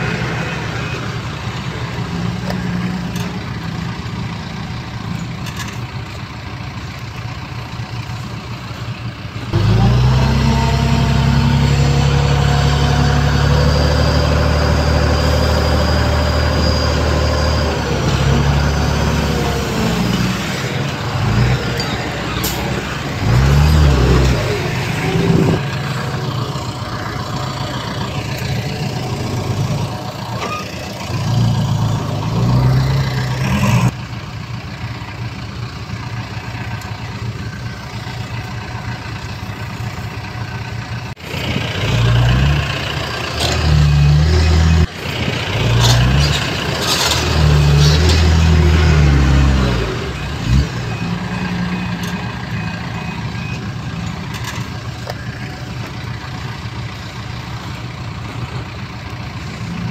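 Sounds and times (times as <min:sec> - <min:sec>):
heavy machinery engine revving: 0:09.4 - 0:34.0, 0:41.1 - 0:59.9.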